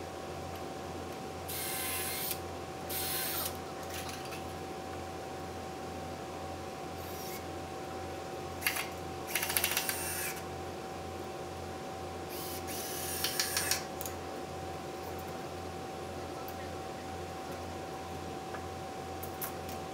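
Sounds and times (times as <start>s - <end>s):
cordless drill driving screws: 1.5s - 3.5s, 9.3s - 10.4s.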